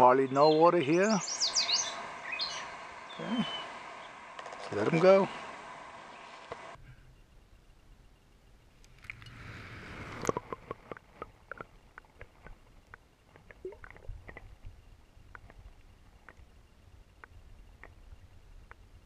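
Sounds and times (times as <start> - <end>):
small clicks and ticks: 8.8 - 9.4, 10.1 - 19.0.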